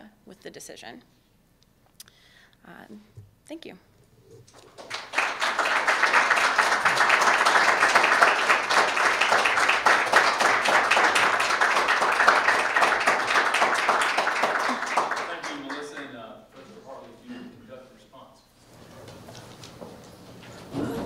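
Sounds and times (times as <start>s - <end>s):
audience applauding: 4.5s - 16.2s.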